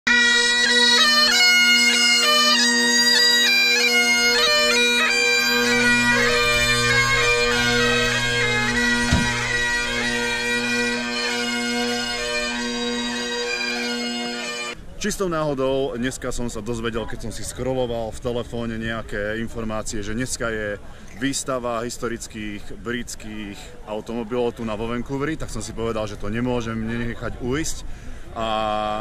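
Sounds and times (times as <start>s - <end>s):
bagpipes playing: 0.1s - 14.8s
brief thump: 8.8s - 9.8s.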